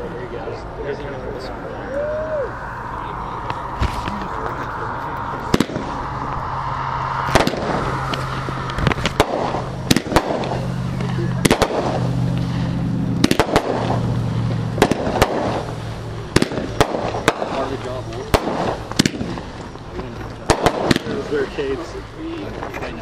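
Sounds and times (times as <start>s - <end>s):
steady hum: 0.0s - 23.0s
fireworks bangs and pops: 5.5s - 6.0s, 7.3s - 21.8s.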